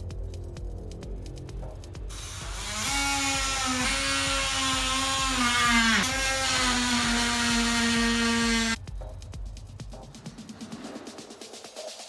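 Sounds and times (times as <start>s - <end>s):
oscillating multi-tool cutting wood: 2.1s - 8.8s.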